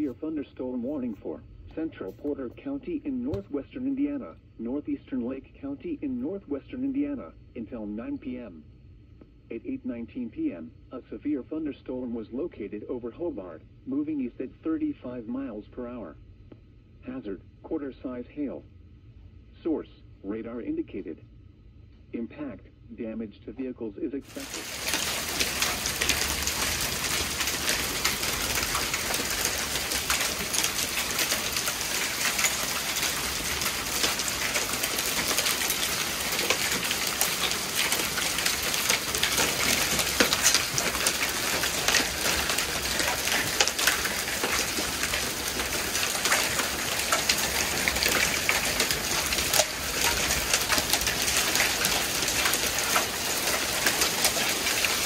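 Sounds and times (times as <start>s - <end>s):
rain and hail on wooden deck: 0.0s - 0.2s, 24.3s - 55.0s.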